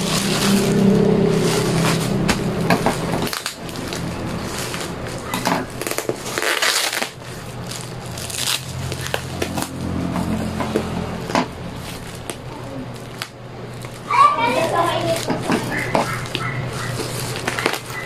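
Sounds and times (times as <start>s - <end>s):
plastic packaging crinkling: 0.0s - 9.7s, 11.2s - 18.0s
low hum: 0.0s - 13.6s
tape peeling: 0.0s - 18.0s.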